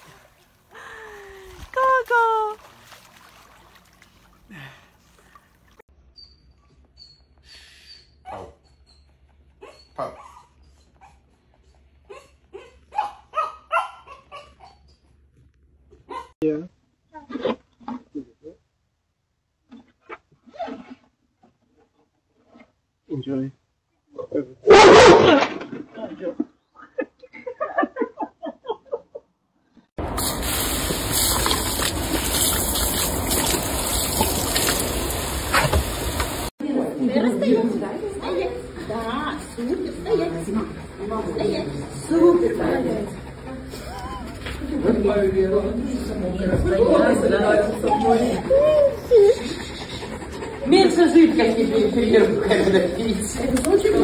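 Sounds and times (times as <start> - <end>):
puppy yelping and yipping: 8.2 - 11.4, 12.1 - 15.1, 16.1 - 16.4, 43.8 - 44.6
hose spray splashing: 30.0 - 36.5.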